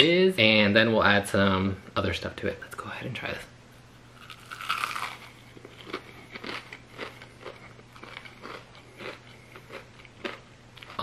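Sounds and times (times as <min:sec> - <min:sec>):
person chewing crunchy food: 0:04.2 - 0:11.0.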